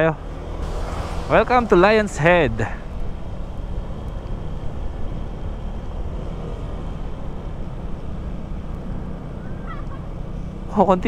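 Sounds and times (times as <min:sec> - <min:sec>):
motorcycle engine drone: 0:00.0 - 0:11.0.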